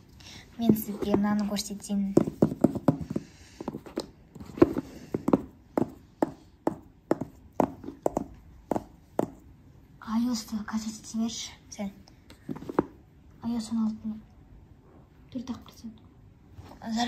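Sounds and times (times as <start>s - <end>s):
fingernails tapping on cardboard box: 2.2s - 9.4s.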